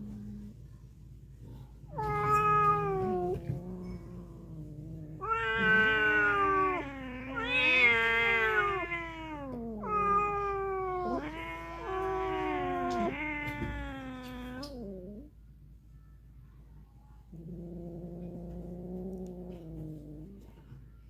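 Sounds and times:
cat yowling: 5.2 - 15.2.

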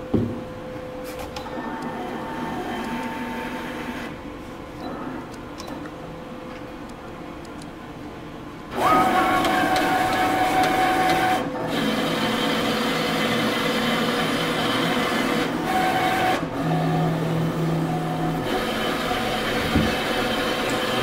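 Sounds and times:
cutting plotter motors whining: 1.5 - 4.2, 8.7 - 21.0.

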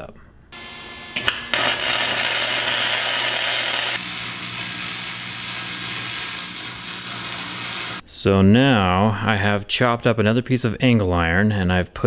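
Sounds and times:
low hum: 0.6 - 8.0
welder arc crackling: 0.6 - 8.0.

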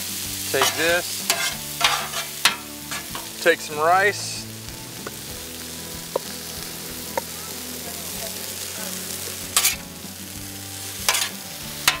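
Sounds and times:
food sizzling on a griddle: 0.0 - 12.0
metal spatula scraping griddle: 0.4 - 4.3, 9.1 - 12.0.

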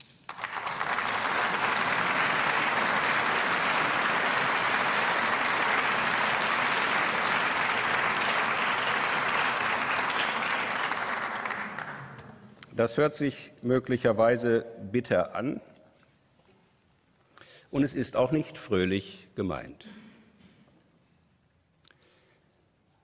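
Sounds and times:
audience applauding: 0.0 - 12.3.

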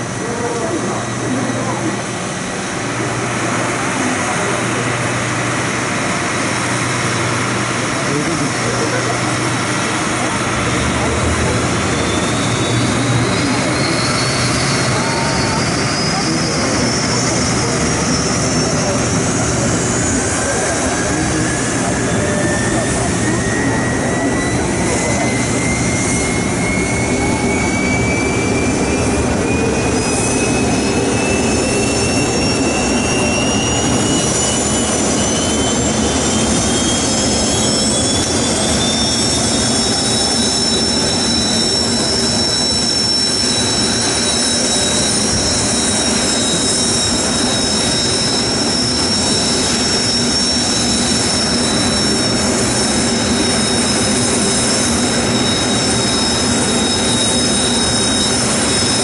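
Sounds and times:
jet engine rumble: 0.0 - 40.4
jet engine whine: 0.0 - 59.0.

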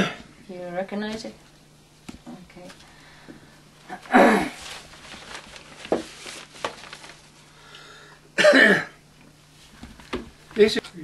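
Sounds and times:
man coughing: 8.4 - 9.0.

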